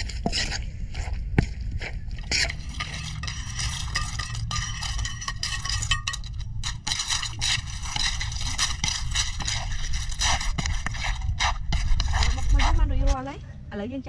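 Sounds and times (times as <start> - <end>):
spoon scraping in clay mortar: 2.2 - 13.2.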